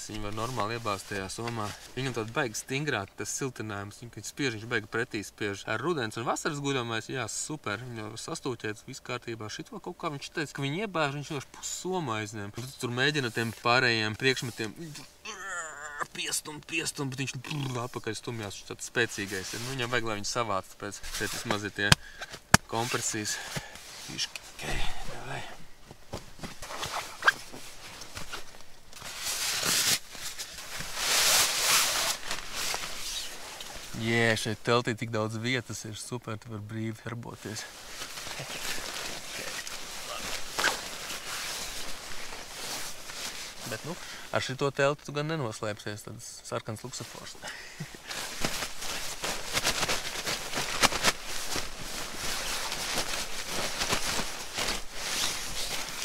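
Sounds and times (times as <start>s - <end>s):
sleeping bag fabric rustling: 19.0s - 24.6s, 25.9s - 34.6s, 37.4s - 44.0s, 47.9s - 56.0s
fabric swishes: 26.4s - 34.0s, 37.6s - 44.0s, 48.0s - 56.0s.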